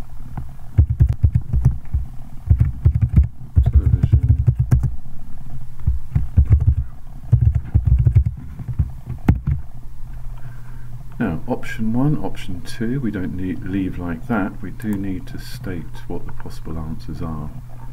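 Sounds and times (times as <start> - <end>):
computer keyboard typing: 0.8 - 1.8, 2.5 - 4.9, 6.4 - 8.8.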